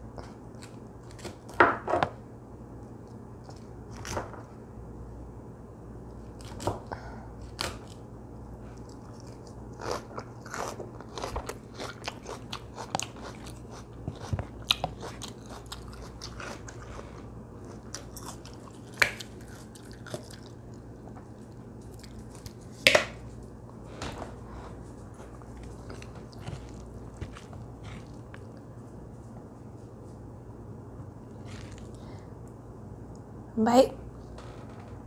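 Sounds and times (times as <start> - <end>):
person chewing crunchy salad: 7.4 - 23.3, 24.3 - 29.1, 31.3 - 32.1.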